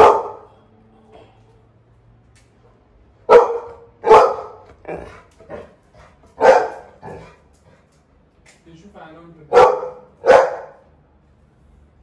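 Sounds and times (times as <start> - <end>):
dog barking: 0.0 - 0.5, 3.2 - 5.7, 6.4 - 7.3, 9.5 - 10.8.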